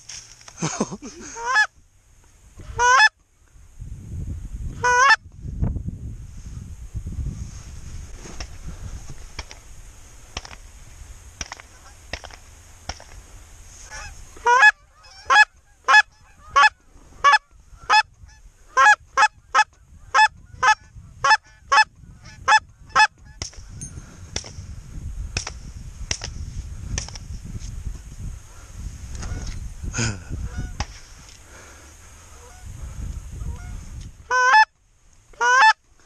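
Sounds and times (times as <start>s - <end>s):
distant goose honks: 1.4s - 1.7s, 2.7s - 3.2s, 13.9s - 23.4s, 30.4s - 31.0s, 32.2s - 32.7s, 33.4s - 34.7s, 35.4s - 35.8s
loud goose call honks: 1.4s - 1.7s, 2.7s - 3.2s, 4.8s - 5.2s, 13.9s - 23.1s, 30.4s - 30.9s, 33.4s - 34.8s, 35.4s - 35.8s
wind rumble on microphone: 3.4s - 34.4s.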